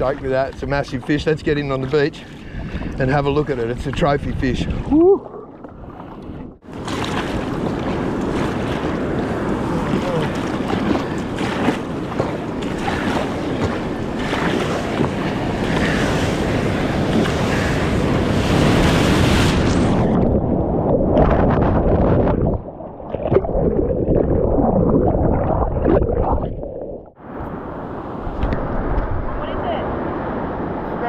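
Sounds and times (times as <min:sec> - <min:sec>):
muffled underwater churning: 0:00.0 - 0:27.6
wind on microphone: 0:02.5 - 0:31.0
surf breaking: 0:06.7 - 0:31.0.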